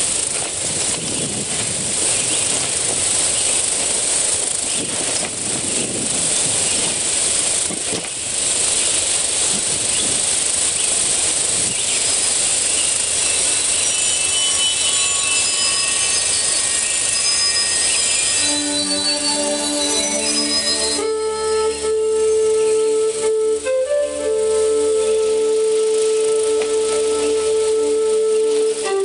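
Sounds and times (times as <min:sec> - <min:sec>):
loud rushing hiss: 0:00.0 - 0:29.0
faint high ringing tones: 0:12.1 - 0:22.9.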